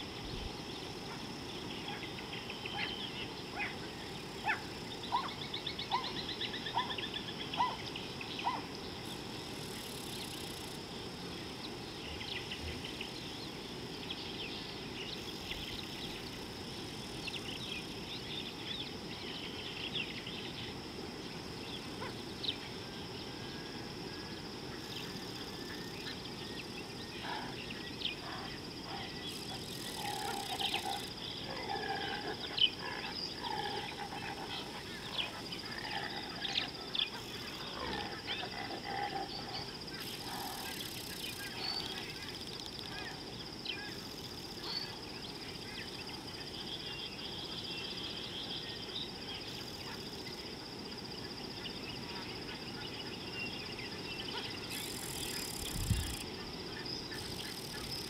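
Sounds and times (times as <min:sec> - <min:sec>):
birds chirping: 0:00.0 - 0:10.6, 0:24.7 - 0:58.0
high insect drone: 0:00.0 - 0:58.0.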